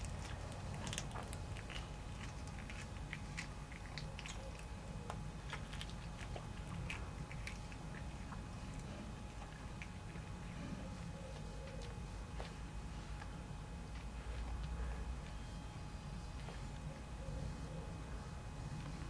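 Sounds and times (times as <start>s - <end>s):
teeth clicking: 0.0s - 10.4s
cat chewing with wet crunching: 0.0s - 19.0s.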